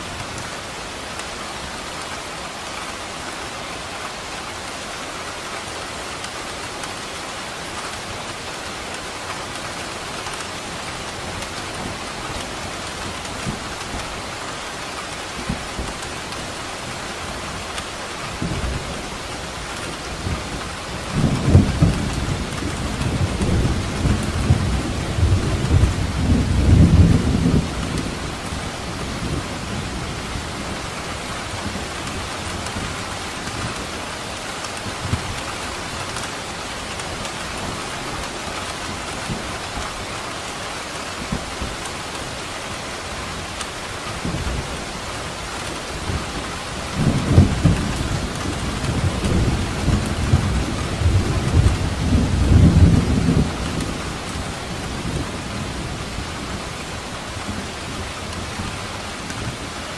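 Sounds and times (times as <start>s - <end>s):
steady rain: 0.0s - 59.9s
rolling thunder: 46.0s - 56.0s.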